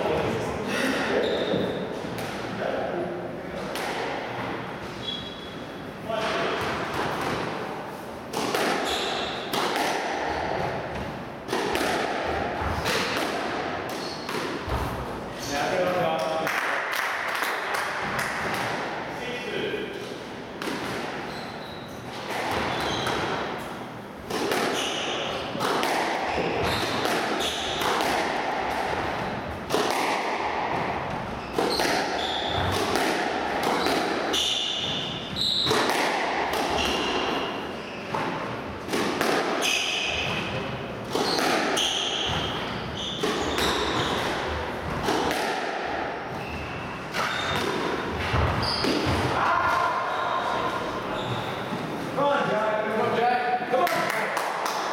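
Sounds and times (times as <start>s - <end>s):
squash ball hitting racquets and walls: 0.0s - 52.2s, 53.8s - 54.9s
shoes squeaking on wooden floor: 21.2s - 23.3s, 26.3s - 27.8s, 34.3s - 35.8s, 36.8s - 38.4s, 41.2s - 44.5s, 46.3s - 47.6s, 48.3s - 49.1s, 51.1s - 52.0s.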